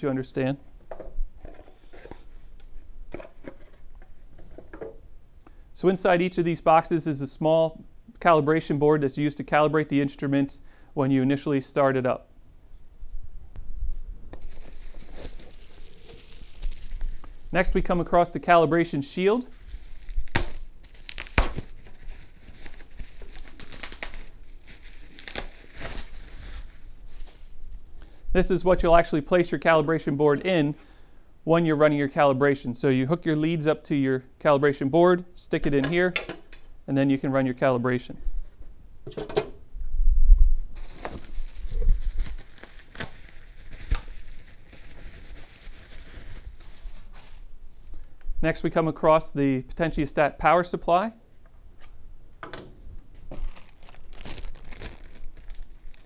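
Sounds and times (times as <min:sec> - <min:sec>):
bubble wrap bag crinkling: 0:14.3 - 0:28.0, 0:40.6 - 0:47.9, 0:53.2 - 0:56.0.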